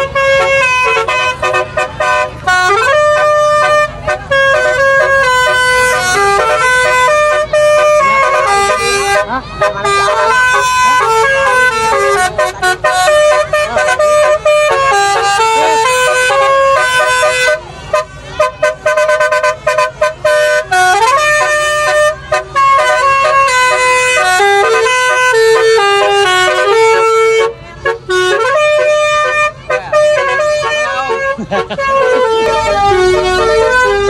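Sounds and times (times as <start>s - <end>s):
car horn playing tune: 0.0s - 34.0s.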